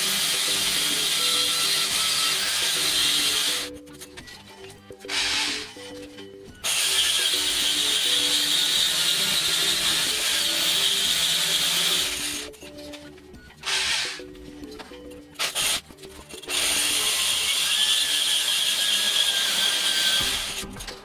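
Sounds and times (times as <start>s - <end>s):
core drill grinding into wall: 0.0s - 3.7s, 6.6s - 12.5s, 16.4s - 20.7s.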